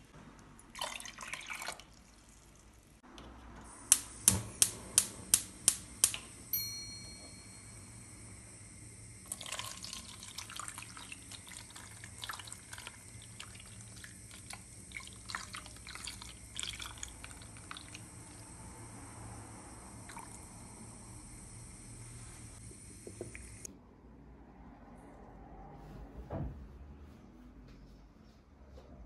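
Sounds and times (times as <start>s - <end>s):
liquid pouring and splashing: 0.7s - 2.8s, 9.2s - 18.5s.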